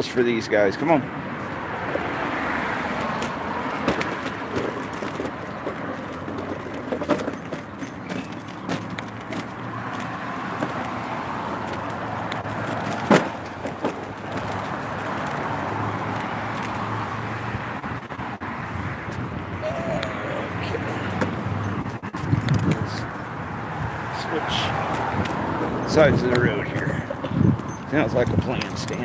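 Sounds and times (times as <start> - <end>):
cars passing: 0.0 - 29.0
metallic jingles and clicks: 4.1 - 13.1, 20.6 - 23.3, 24.6 - 29.0.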